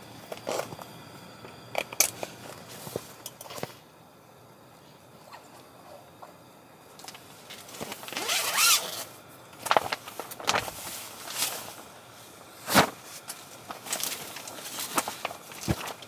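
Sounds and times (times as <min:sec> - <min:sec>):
zipper being pulled: 0:08.2 - 0:09.0.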